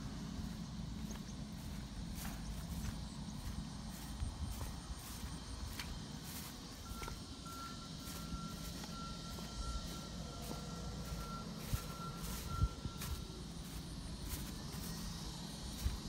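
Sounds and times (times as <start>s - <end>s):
high tone beeping: 6.8s - 15.1s.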